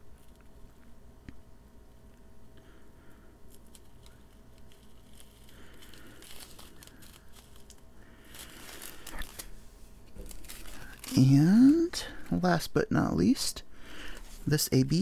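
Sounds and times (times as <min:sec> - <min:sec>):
plastic bag crinkling: 0:03.4 - 0:12.6.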